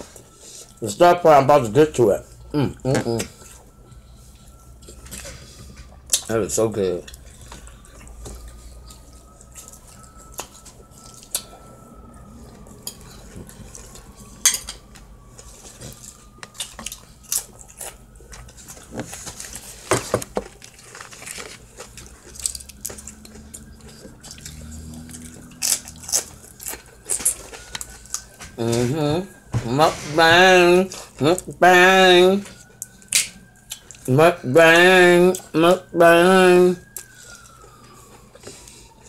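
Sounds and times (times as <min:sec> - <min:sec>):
utensils clinking against dishes: 0:14.4 - 0:14.8.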